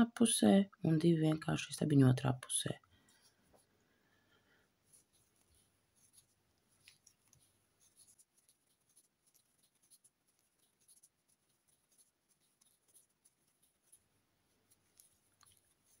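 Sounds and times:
crochet hook scratching yarn: 4.8 - 16.0.

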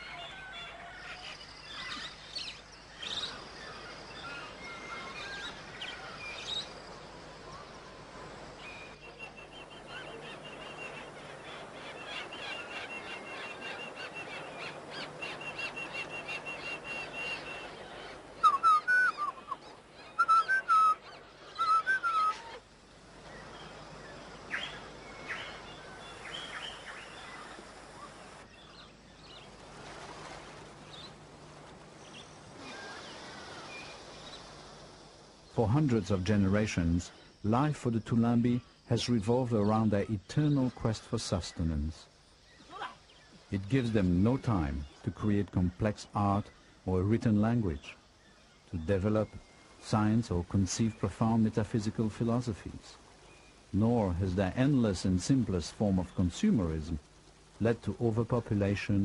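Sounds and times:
sharp upward whistled bird calls: 12.0 - 22.6.

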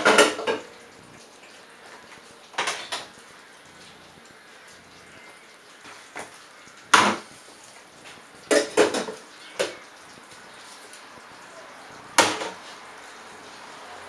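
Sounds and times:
dishes clattering: 0.0 - 0.8, 1.8 - 3.2, 5.2 - 7.3, 8.1 - 9.9, 12.2 - 12.7.

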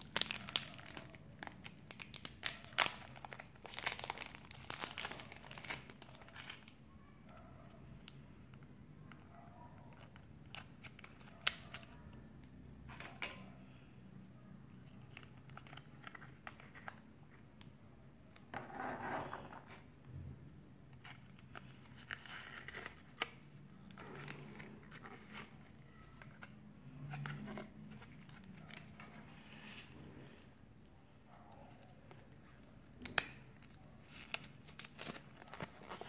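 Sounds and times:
plastic crinkling: 0.0 - 6.7.

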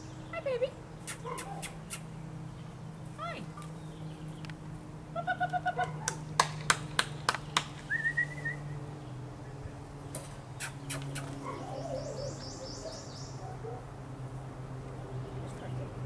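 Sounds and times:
hands clapping: 6.0 - 7.8
bird chirping: 7.4 - 13.7.

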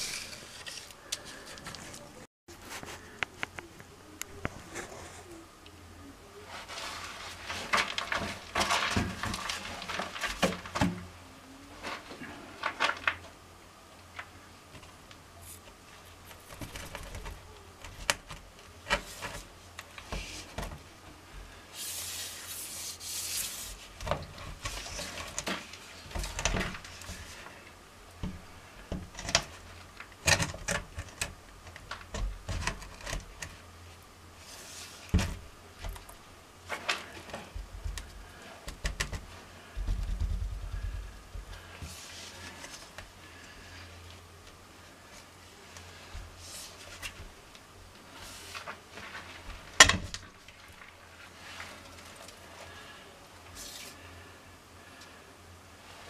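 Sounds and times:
scraping rub: 0.0 - 3.2, 21.7 - 27.6.

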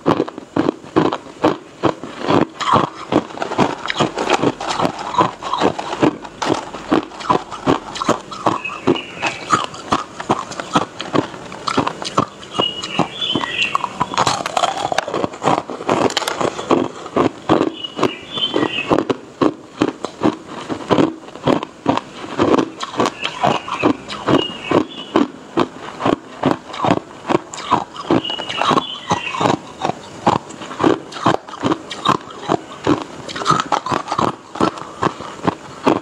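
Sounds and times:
ice crunched between teeth: 0.1 - 24.2.

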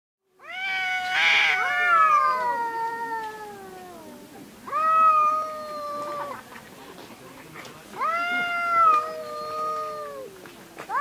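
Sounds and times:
cats yowling: 0.4 - 6.4, 8.0 - 11.0.

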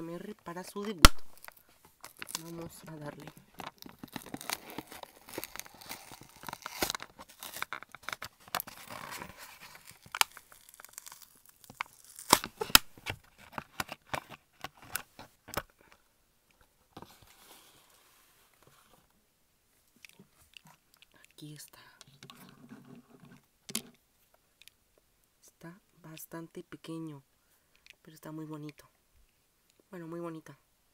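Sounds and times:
blister pack tearing and crinkling: 0.9 - 15.1
plastic snaps and clicks: 1.0 - 1.6.

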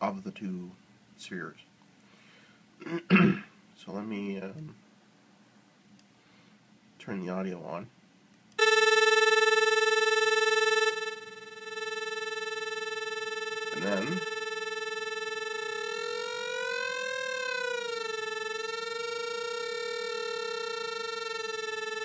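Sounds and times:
synthesized tone bending in pitch: 8.6 - 22.0.

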